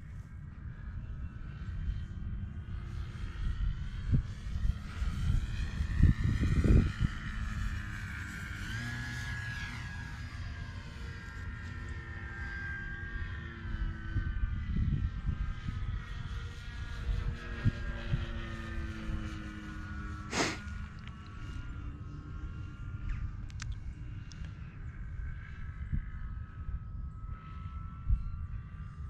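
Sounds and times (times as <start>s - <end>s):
model plane motor whining: 0.0s - 29.0s
wind rumble on microphone: 0.0s - 29.0s
rush of noise: 20.3s - 20.8s.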